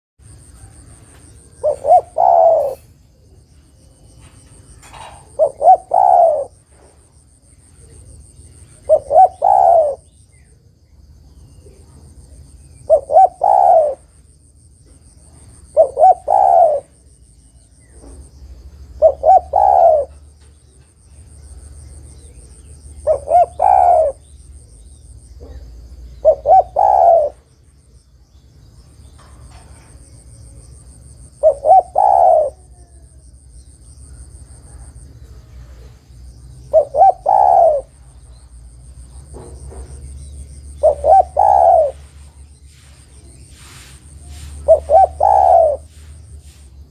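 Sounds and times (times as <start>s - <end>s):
dove cooing: 0.6s - 7.0s, 7.7s - 10.1s, 12.8s - 14.1s, 15.6s - 17.1s, 18.9s - 20.4s, 22.2s - 24.8s, 25.4s - 27.5s, 31.3s - 33.2s, 36.6s - 38.3s, 39.3s - 42.4s, 43.6s - 46.6s.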